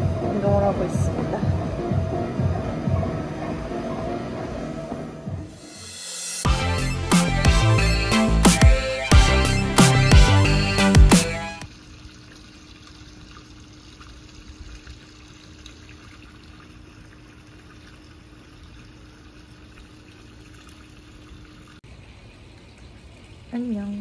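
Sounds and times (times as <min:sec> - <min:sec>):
water splashing into pool: 0:11.6 - 0:24.0.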